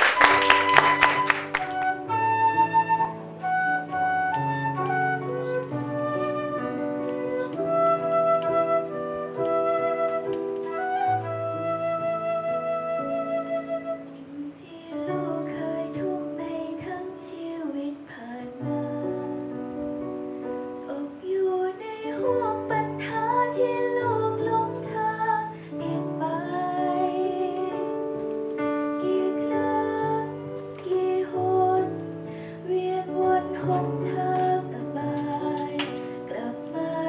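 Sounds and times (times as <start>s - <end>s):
instrumental accompaniment: 0.0s - 17.6s, 18.6s - 37.0s
woman singing into microphone: 13.7s - 19.6s, 20.9s - 28.2s, 28.8s - 37.0s.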